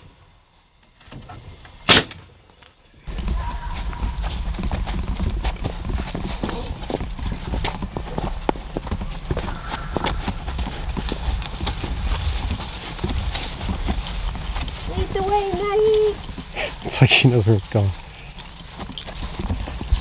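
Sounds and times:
footsteps on grass and dirt: 2.5s - 20.0s
wind buffeting microphone: 3.1s - 20.0s.

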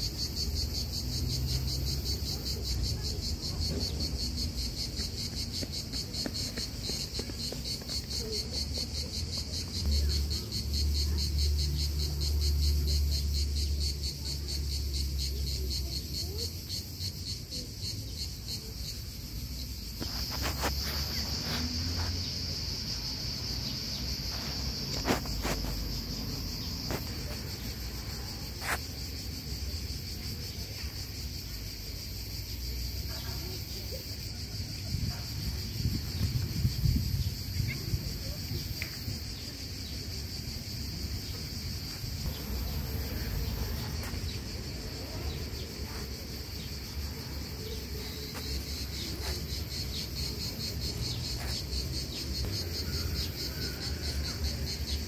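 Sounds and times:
insects trilling: 0.0s - 55.0s.

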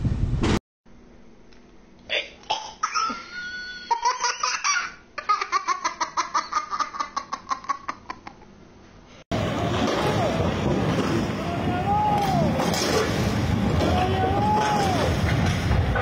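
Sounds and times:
toddler laughing: 2.8s - 8.4s.

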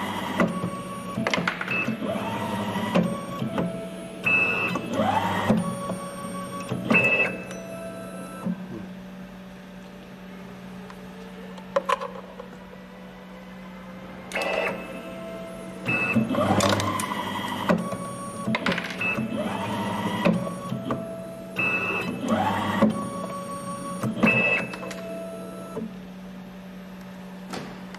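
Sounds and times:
motor whirring and whining: 0.0s - 8.8s, 12.4s - 25.9s
machine humming: 0.0s - 27.9s.

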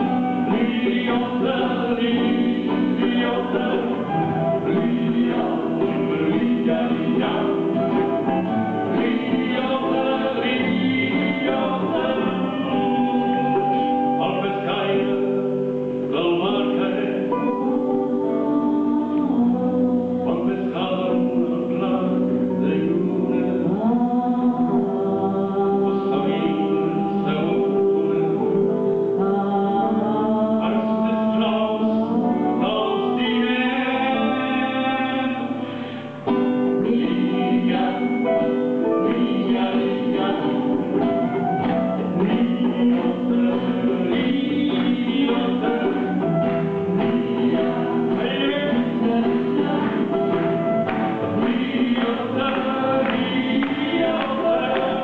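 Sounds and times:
acoustic guitar: 0.0s - 55.0s
electric guitar: 0.0s - 55.0s
man singing: 0.0s - 55.0s
hand drum: 40.8s - 55.0s.

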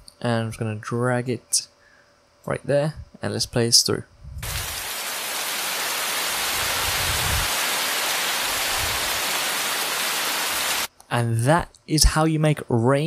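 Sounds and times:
heavy rain: 4.4s - 10.9s.

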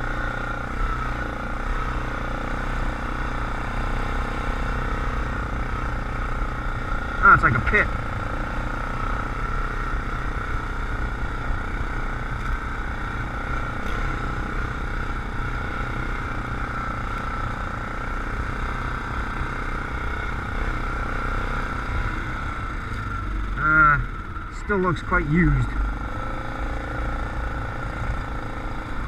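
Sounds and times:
atv engine running: 0.0s - 29.0s.

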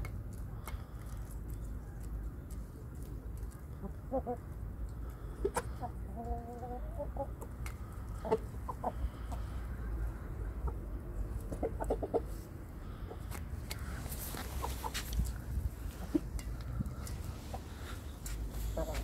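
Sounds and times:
chickens clucking: 0.6s - 19.0s.

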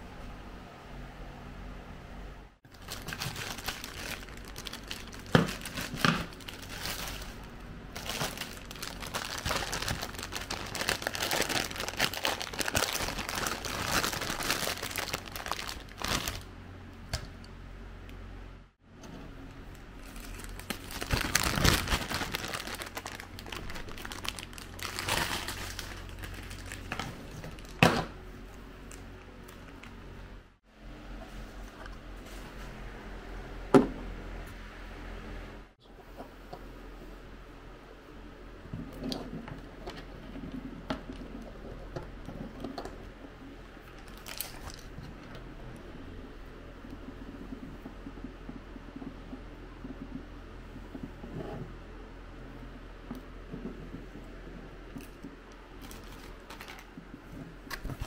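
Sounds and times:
faint steady hum: 0.0s - 58.0s
packaging crinkling: 2.7s - 16.5s, 20.0s - 27.8s, 43.9s - 45.2s, 55.8s - 56.9s.

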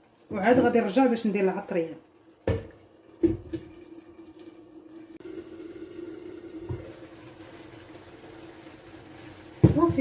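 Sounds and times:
sauce bubbling: 2.0s - 10.0s
soft thump: 2.5s - 3.6s.

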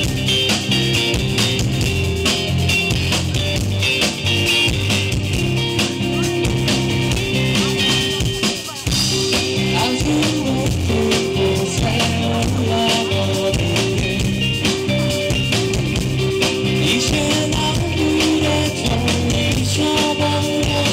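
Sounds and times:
live rock band playing: 0.0s - 20.9s.

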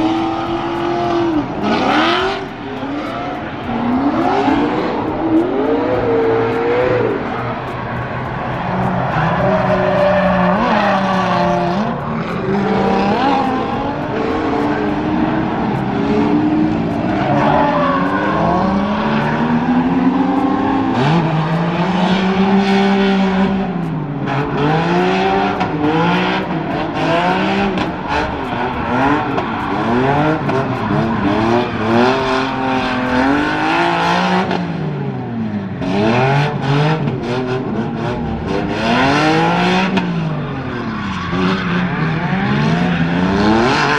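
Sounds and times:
car engine revving hard: 0.0s - 43.9s
tyres screeching on asphalt: 0.0s - 43.9s.

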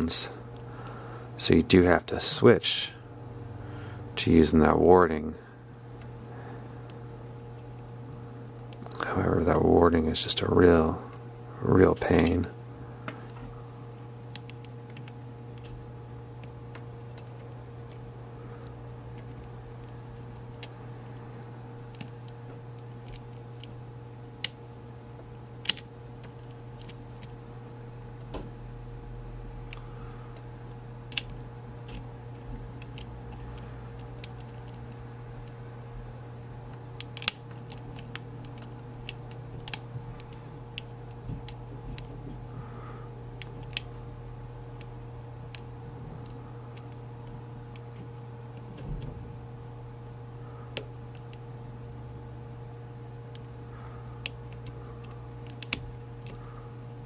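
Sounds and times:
steady low hum: 0.0s - 57.0s
lock pick clicking on pins: 14.3s - 15.7s, 25.6s - 27.4s, 29.7s - 30.4s, 31.1s - 35.0s, 37.0s - 42.2s, 54.2s - 56.4s.

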